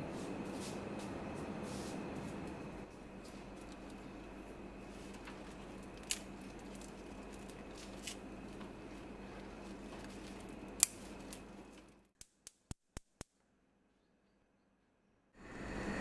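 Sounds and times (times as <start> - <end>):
steady hum: 0.0 - 12.1, 15.4 - 16.0.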